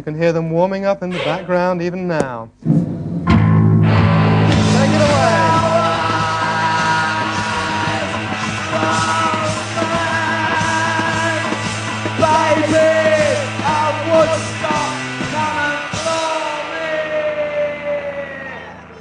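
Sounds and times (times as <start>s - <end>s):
held bass note: 1.1s - 1.9s
electric guitars: 2.7s - 19.0s
singer yelling into microphone: 4.7s - 11.6s, 12.2s - 19.0s.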